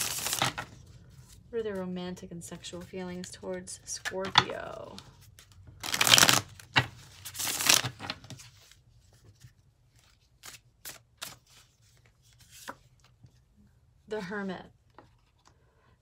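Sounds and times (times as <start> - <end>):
cards being shuffled: 0.0 - 1.4, 4.0 - 13.4.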